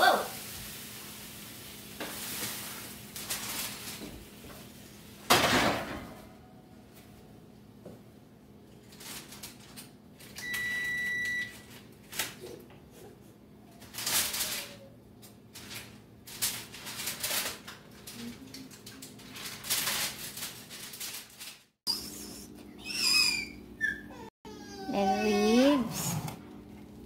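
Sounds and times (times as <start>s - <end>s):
foil rustling: 0.4s - 5.3s, 8.8s - 9.9s, 13.7s - 14.9s, 15.5s - 21.8s.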